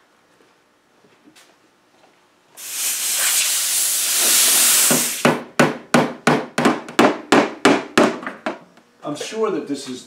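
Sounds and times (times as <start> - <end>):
loud steady hiss: 2.6 - 5.4.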